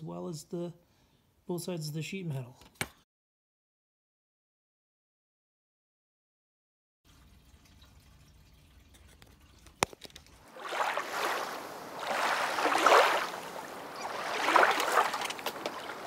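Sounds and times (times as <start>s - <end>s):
water splashing and gurgling: 7.2s - 16.0s.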